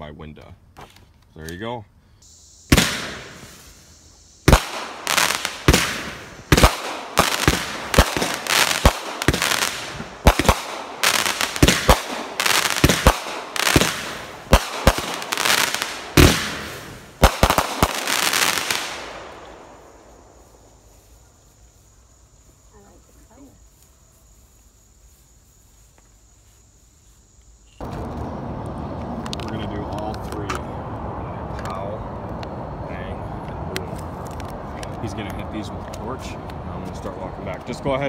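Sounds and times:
firework pops with hiss: 2.2s - 19.8s.

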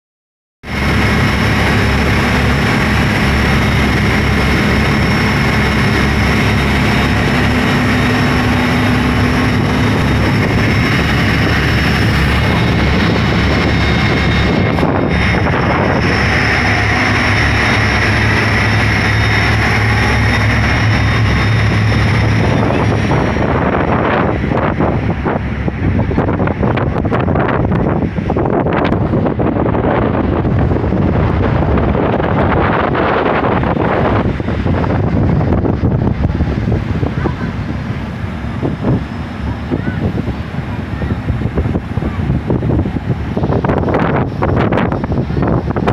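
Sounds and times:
boat engines droning: 0.6s - 45.9s
water rushing in wake: 0.6s - 45.9s.

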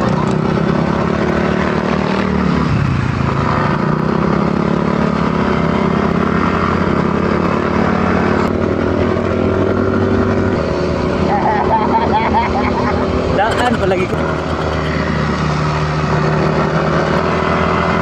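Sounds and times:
rush of noise: 13.4s - 15.8s
motorcycle engine running: 13.4s - 16.5s.

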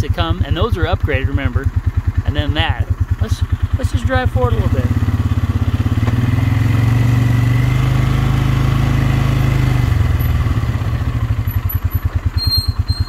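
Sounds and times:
quad engine running: 0.0s - 13.0s.

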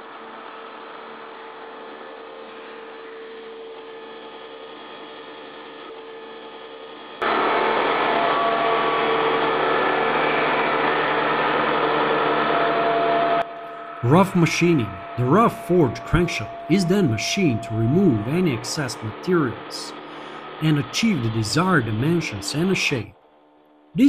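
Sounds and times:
running machinery hum: 0.0s - 24.0s
machine hum with fixed tones: 7.2s - 24.0s.

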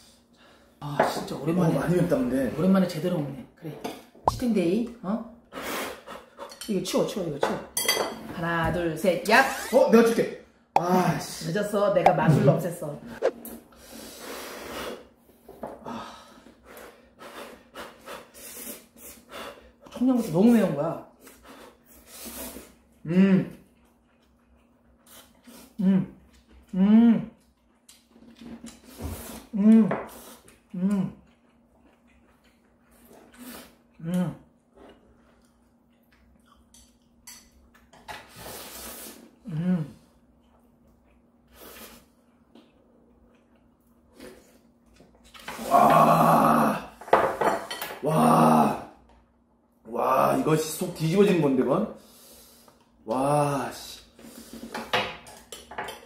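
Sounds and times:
person humming mm: 25.8s - 27.3s, 39.4s - 40.0s.

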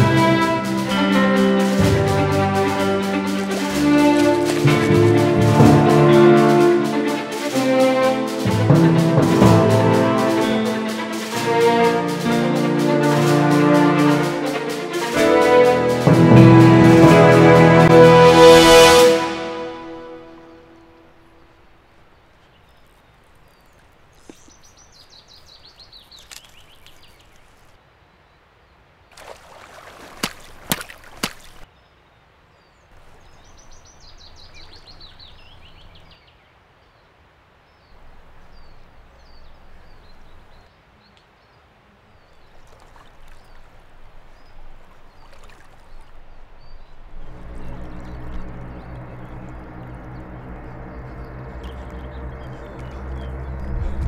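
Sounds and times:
flowing water: 0.0s - 28.1s, 28.9s - 31.7s, 32.9s - 54.0s
small bird singing: 22.4s - 27.6s, 31.7s - 37.0s, 37.7s - 41.6s, 44.3s - 54.0s.

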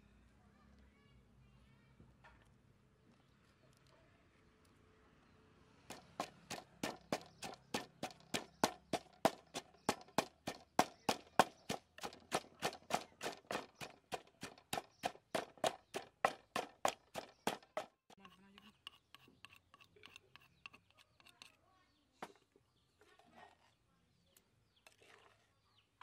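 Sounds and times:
wooden pestle pounding in mortar: 5.9s - 21.4s.

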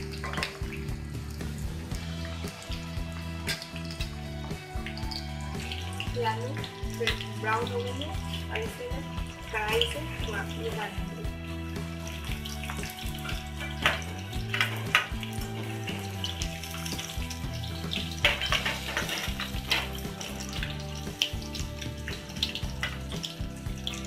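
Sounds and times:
potatoes sizzling in hot oil: 0.0s - 24.0s
skimmer scraping and clinking on pan: 12.0s - 24.0s.

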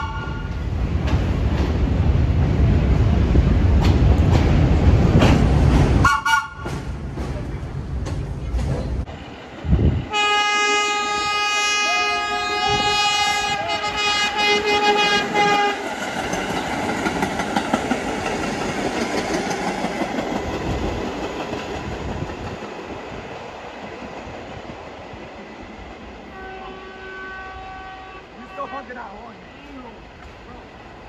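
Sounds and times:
train horn blast: 0.0s - 0.6s, 6.0s - 6.8s, 10.1s - 15.9s, 26.3s - 29.2s
train wheel and rail noise: 0.0s - 31.0s.

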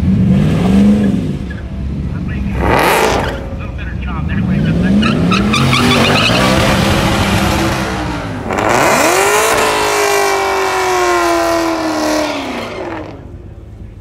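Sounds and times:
engine revving hard: 2.5s - 3.6s, 4.3s - 13.3s.

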